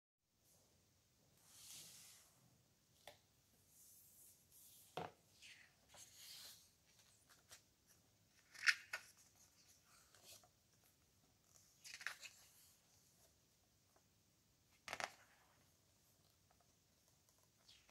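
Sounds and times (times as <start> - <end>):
book pages rustling: 4.7 - 13.4.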